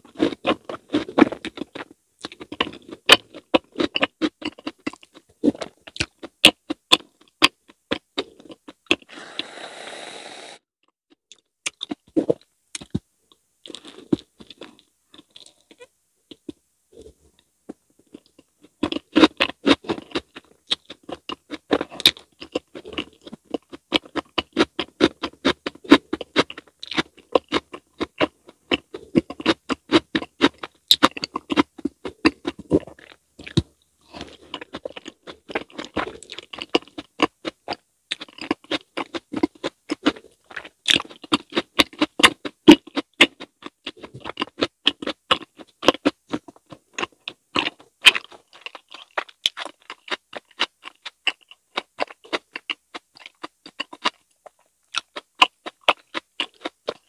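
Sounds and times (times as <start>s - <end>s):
close-miked chewing with smacks: 0.0s - 9.1s, 10.8s - 57.0s.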